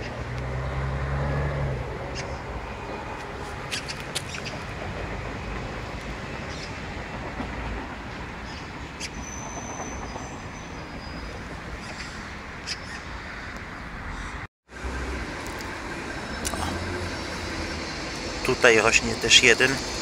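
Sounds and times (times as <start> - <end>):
street traffic rumble: 0.0 - 20.0
faint high whine: 14.8 - 20.0.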